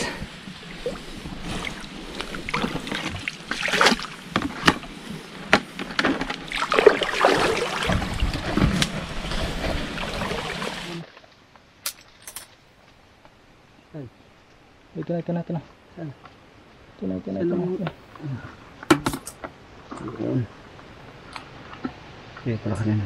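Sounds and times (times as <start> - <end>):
muddy water splashing: 0.0 - 11.4.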